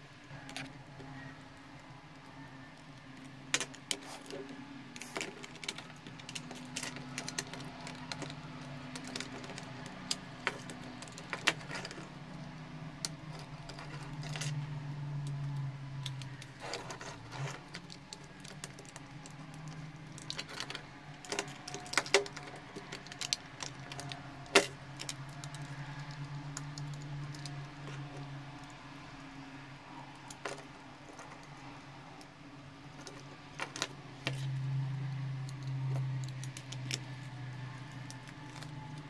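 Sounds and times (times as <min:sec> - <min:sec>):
low steady hum: 0:00.0 - 0:39.0
plastic clicks and rattles: 0:03.2 - 0:12.4, 0:13.0 - 0:29.4, 0:32.8 - 0:34.6.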